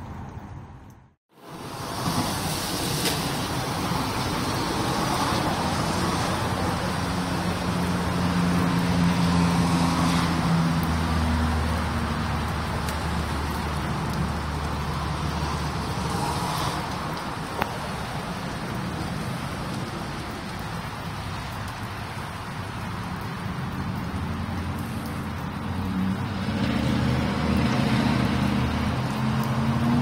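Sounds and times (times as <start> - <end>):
traffic on wet road: 0.0 - 30.0
vehicle engine hum: 0.0 - 30.0
steady rain: 1.4 - 30.0.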